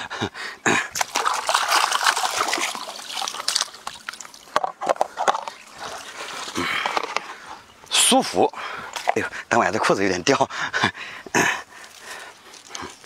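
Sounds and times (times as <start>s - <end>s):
water splashing and sloshing: 0.8s - 7.5s, 11.7s - 13.0s.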